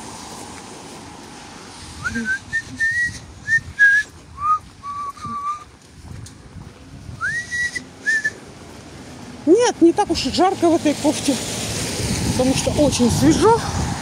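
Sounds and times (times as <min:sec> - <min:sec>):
person whistling a tune: 0:02.0 - 0:05.6, 0:07.2 - 0:08.4.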